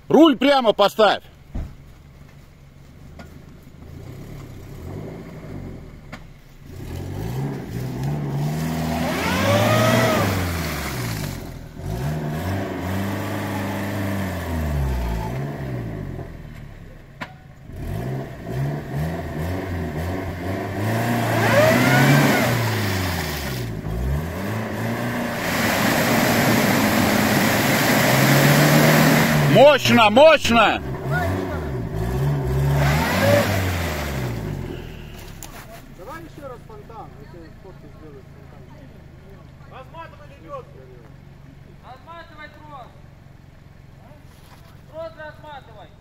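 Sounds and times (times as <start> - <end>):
jeep engine revving: 3.2 - 17.0, 17.6 - 44.1.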